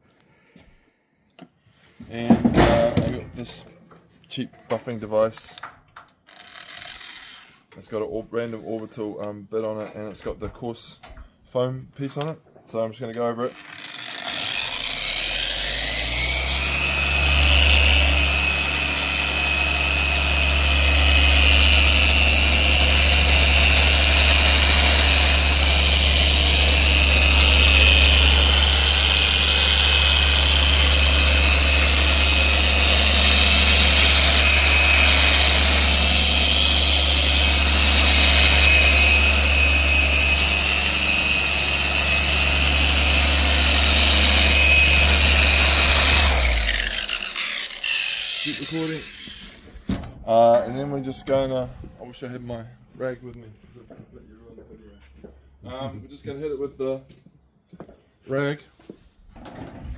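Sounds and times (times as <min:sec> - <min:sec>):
buffer motor whine: 0:15.8 - 0:47.2.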